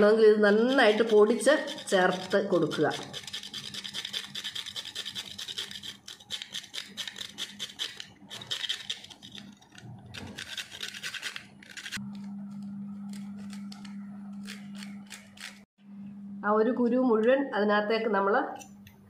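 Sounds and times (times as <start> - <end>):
nutmeg grated on metal grater: 0.0 - 12.0, 13.1 - 15.7
steady low hum: 11.6 - 19.0.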